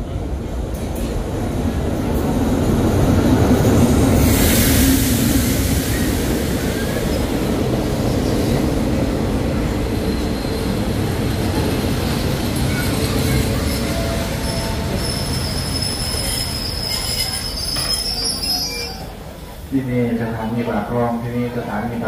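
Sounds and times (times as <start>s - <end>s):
train low rumble: 0.0s - 22.0s
rush of hissing: 3.9s - 8.5s
faint thin wheel squeals: 12.7s - 19.1s.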